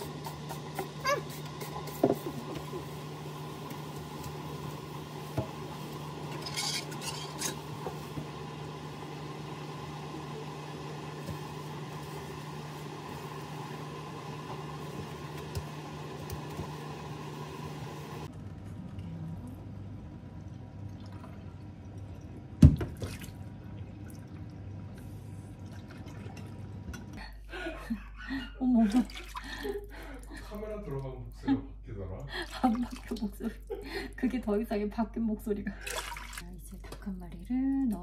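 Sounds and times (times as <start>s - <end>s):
paper towel wiping sink: 0.0s - 8.3s, 11.2s - 16.8s.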